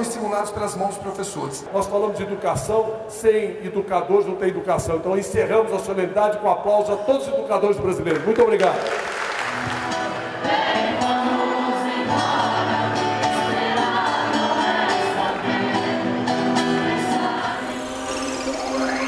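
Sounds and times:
crowd applause: 8.1s - 10.5s
choir-like singing with music: 9.6s - 19.0s.

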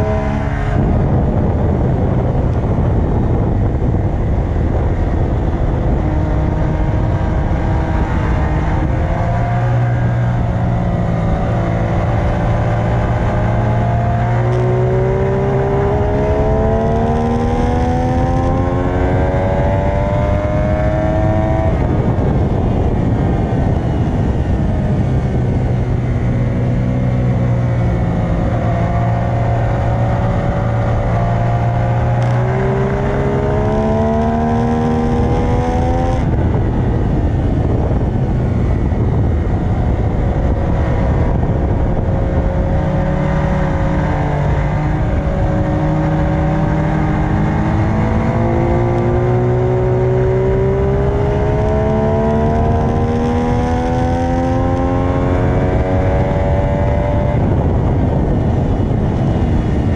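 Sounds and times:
motorcycle engine revving: 0.0s - 59.9s
wind rush over microphone: 0.0s - 59.9s.

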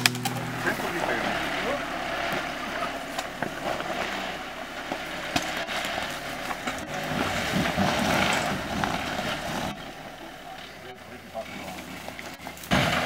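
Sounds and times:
car engine at low revs: 0.0s - 13.0s
stones clicking under tyres: 2.2s - 10.2s.

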